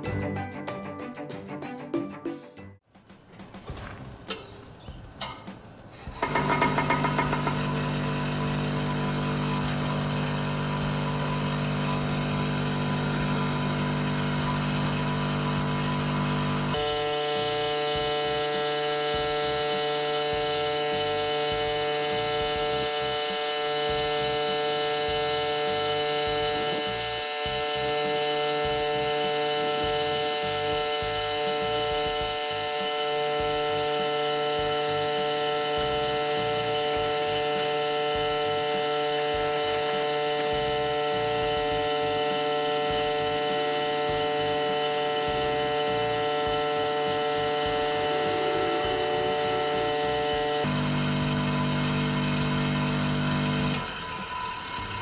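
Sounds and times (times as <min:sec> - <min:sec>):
electric shaker humming: 0:06.4 - 0:54.0.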